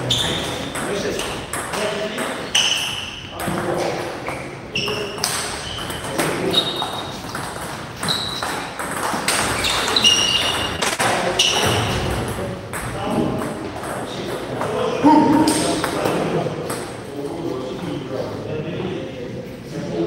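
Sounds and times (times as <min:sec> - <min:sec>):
table tennis ball hits: 0:00.3 - 0:16.9.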